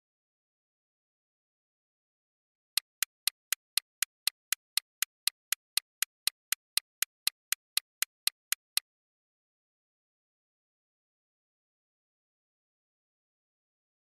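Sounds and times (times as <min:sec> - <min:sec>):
clock-like ticks: 0:02.8 - 0:08.8.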